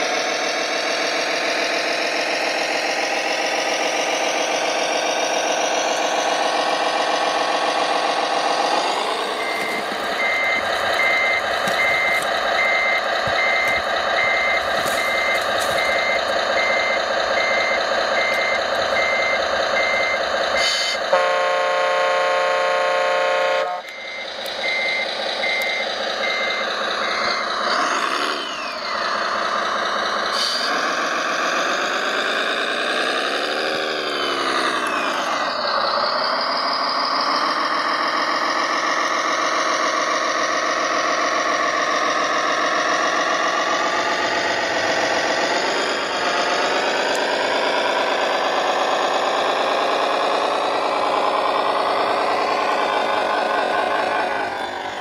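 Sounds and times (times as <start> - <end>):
simulated diesel engine: 0.0 - 55.0
reversing beeps: 9.2 - 21.0, 23.7 - 29.3
horn blast: 20.6 - 23.9.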